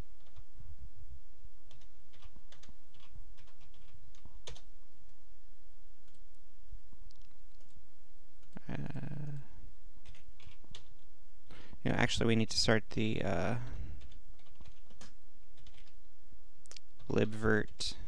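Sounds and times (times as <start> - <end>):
keyboard typing: 0.2 - 0.5, 1.7 - 4.7, 7.1 - 7.8, 10.0 - 11.1, 14.0 - 16.0.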